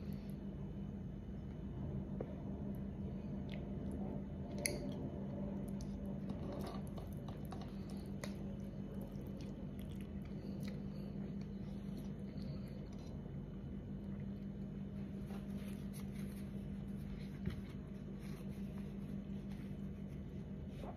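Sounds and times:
steady low hum: 0.0s - 20.9s
person chewing with mouth clicks: 7.1s - 13.1s.

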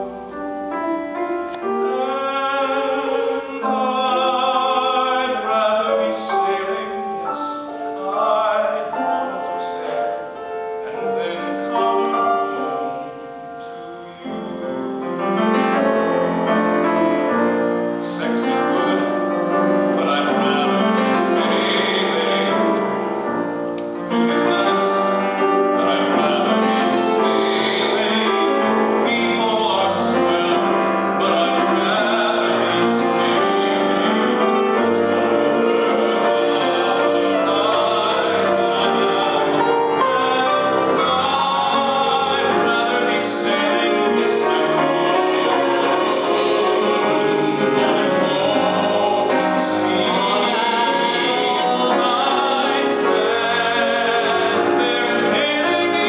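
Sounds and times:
piano accompaniment: 0.0s - 56.0s
man singing a show tune: 1.7s - 15.1s, 16.8s - 23.4s, 24.0s - 56.0s.

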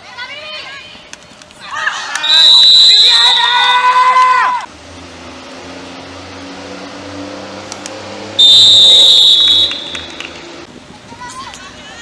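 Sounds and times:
referee whistle blast: 2.2s - 3.9s, 8.4s - 10.2s.

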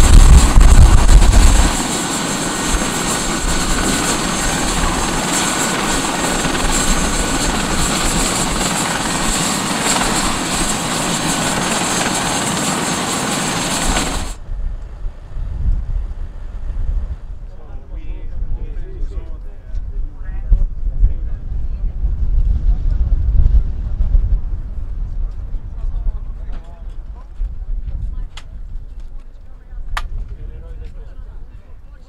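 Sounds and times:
heavy low rumble: 0.0s - 12.4s, 13.5s - 28.8s
high whine: 0.0s - 17.5s
helicopter turbines and rotor: 0.0s - 19.3s.

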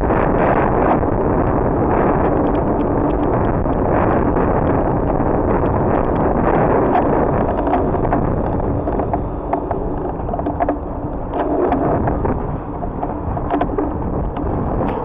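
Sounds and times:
city street rumble: 0.0s - 15.0s
bicycle clicks and rattles: 4.8s - 15.0s.

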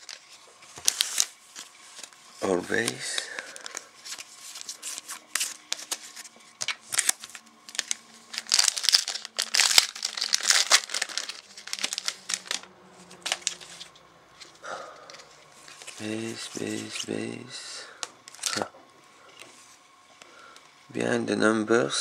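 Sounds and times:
foil wrapper crinkling and tearing: 0.0s - 14.0s, 18.2s - 18.7s.

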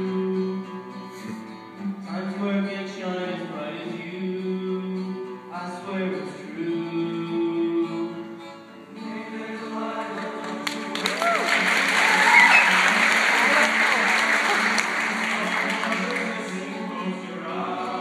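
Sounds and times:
acoustic guitar: 0.0s - 18.0s
male choir singing: 8.9s - 13.1s, 14.4s - 18.0s.

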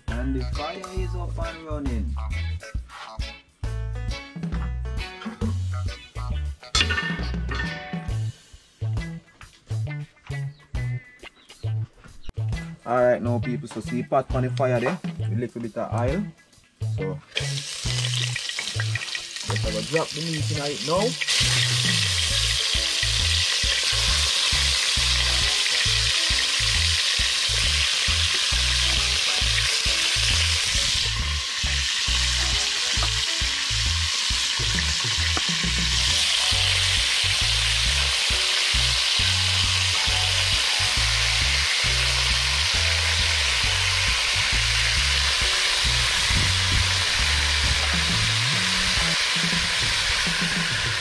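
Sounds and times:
meat sizzling in hot oil: 17.3s - 51.0s.

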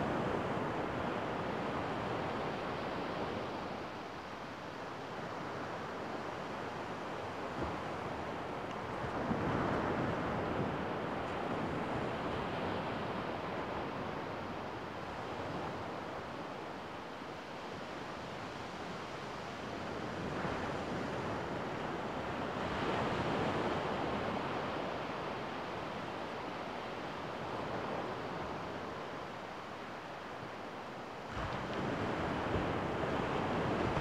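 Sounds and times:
waves washing up a beach: 0.0s - 34.0s.

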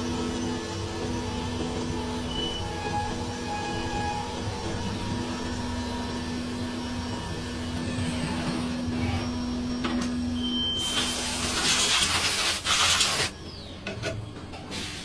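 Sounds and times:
milling machine humming: 0.0s - 11.7s
loud hiss: 10.8s - 13.3s.

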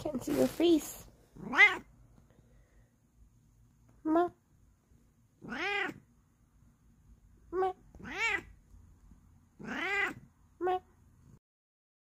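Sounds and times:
cat meowing: 1.4s - 1.9s, 5.4s - 6.1s, 7.6s - 8.6s, 9.6s - 10.8s.

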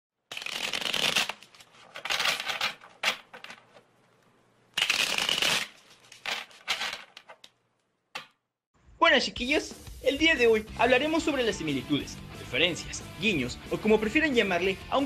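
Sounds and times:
cards being shuffled: 0.3s - 3.9s, 4.8s - 7.6s.

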